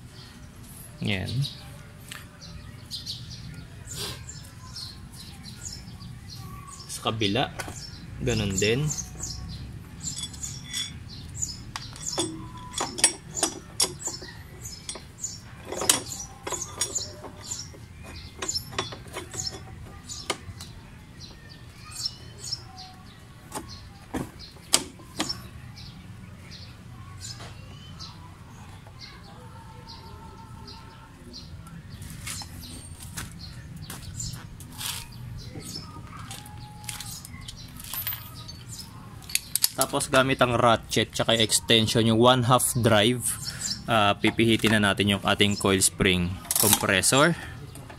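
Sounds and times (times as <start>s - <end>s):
metal clinks and taps: 10.0s - 11.0s, 11.7s - 19.7s.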